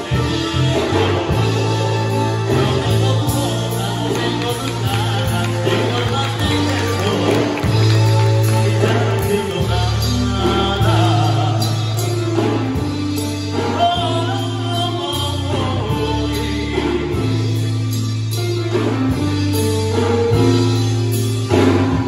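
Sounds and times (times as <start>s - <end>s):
held bass notes: 0.0s - 22.0s
music with singing: 0.0s - 22.0s.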